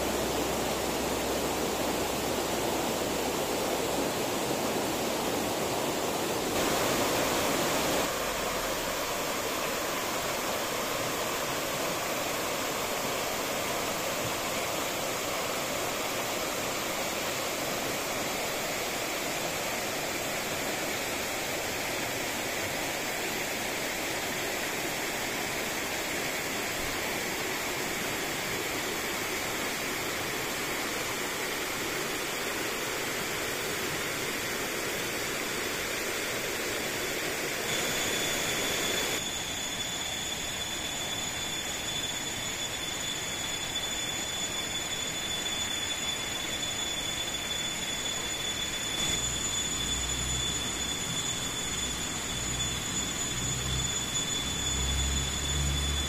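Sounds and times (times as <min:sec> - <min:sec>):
water rushing: 0:00.0 - 0:22.2.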